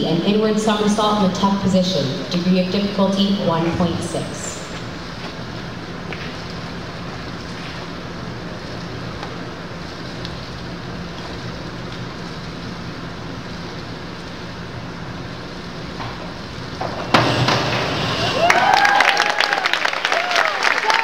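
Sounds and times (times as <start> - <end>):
indoor pool hum and hiss: 0.0 - 21.0.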